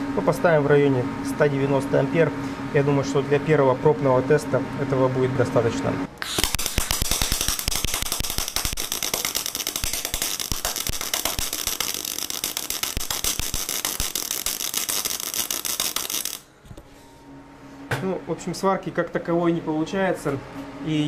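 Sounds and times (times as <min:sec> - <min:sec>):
welding arc spitting and popping: 0:06.2 - 0:16.5.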